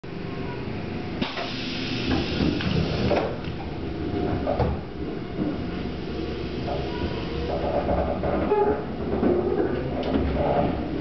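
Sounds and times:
electric train motors rumbling: 0:00.1 - 0:11.0
air rushing hiss: 0:01.2 - 0:03.2.

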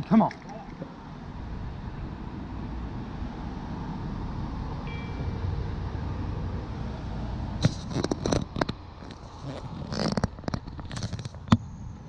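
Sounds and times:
sharp clicks and crackles: 0:07.6 - 0:11.7.

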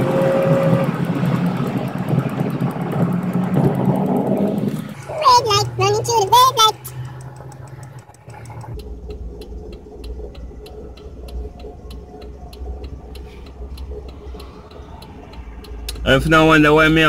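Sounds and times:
car engine idling: 0:00.0 - 0:17.0
turn-signal flasher ticking: 0:00.0 - 0:17.0.

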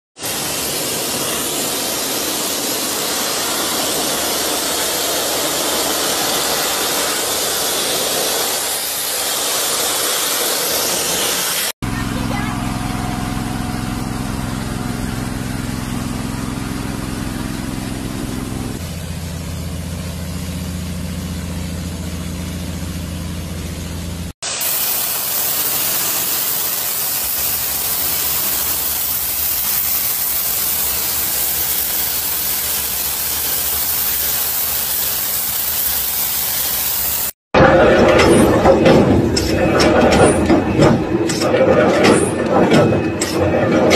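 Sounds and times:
high-pressure water jet hiss: 0:00.2 - 0:11.8, 0:24.4 - 0:37.4
water spraying from spray bar: 0:00.2 - 0:11.8, 0:12.8 - 0:37.4
pressure washer motor: 0:00.2 - 0:37.4.

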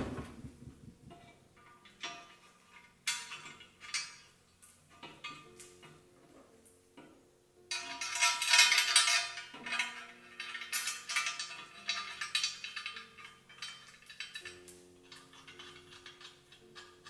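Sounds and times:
soft background music: 0:00.2 - 0:17.0
metallic clinking of engine parts: 0:01.1 - 0:06.1, 0:07.7 - 0:17.0.

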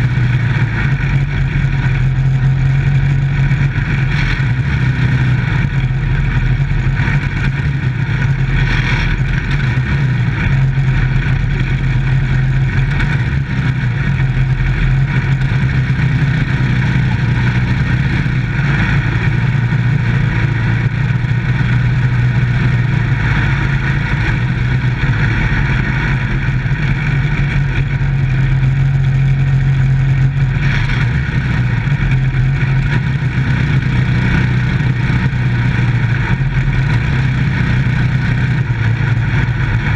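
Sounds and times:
race car engine running hard: 0:00.0 - 0:39.9.

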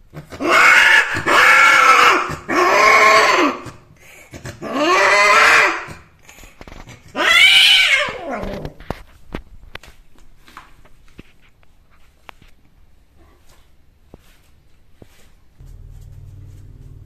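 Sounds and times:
cat yowling: 0:00.4 - 0:03.6, 0:04.6 - 0:06.0, 0:07.1 - 0:08.6.

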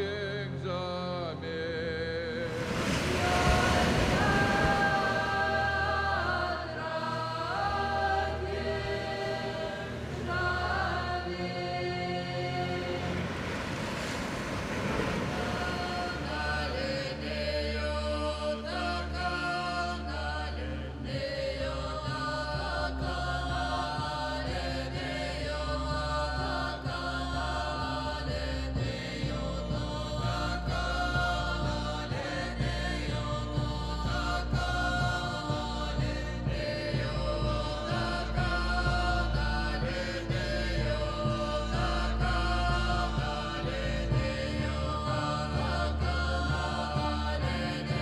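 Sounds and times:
voices chanting folk song: 0:00.0 - 0:48.0
low drone: 0:02.2 - 0:18.9
rushing noise: 0:02.3 - 0:06.5, 0:08.3 - 0:17.4.

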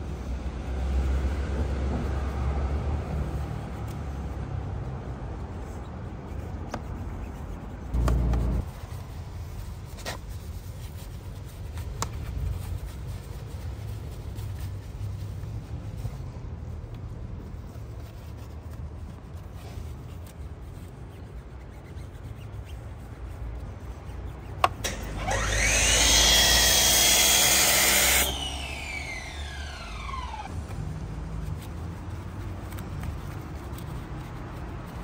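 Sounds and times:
power tool motor whining: 0:24.9 - 0:30.5.

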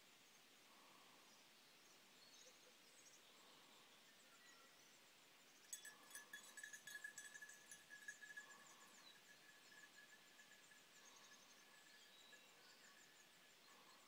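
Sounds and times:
faint high chirps: 0:02.2 - 0:14.0
thin steady high tone: 0:03.3 - 0:14.0.

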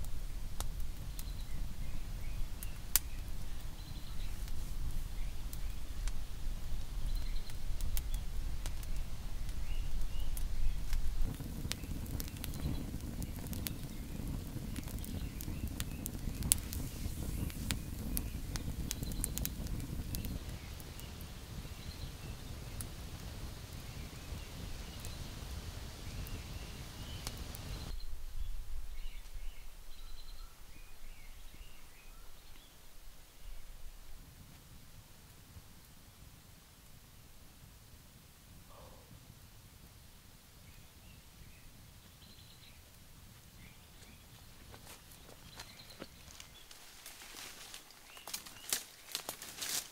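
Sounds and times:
steady low rumble: 0:00.0 - 0:32.0
forest birds chirping: 0:00.0 - 0:34.2, 0:38.6 - 0:39.2, 0:40.4 - 0:49.9
campfire crackling and popping: 0:00.0 - 0:49.9
rush of burning flames: 0:00.0 - 0:49.9.

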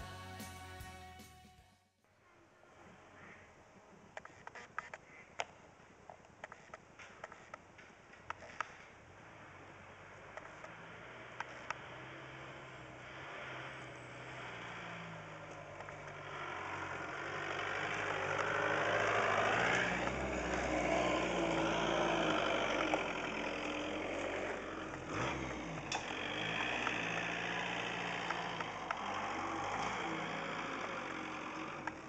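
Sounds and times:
van engine running: 0:00.0 - 0:01.4, 0:09.2 - 0:32.0.

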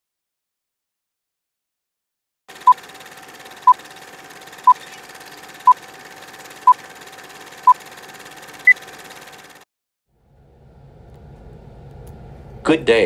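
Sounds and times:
faint hum: 0:10.1 - 0:13.0.

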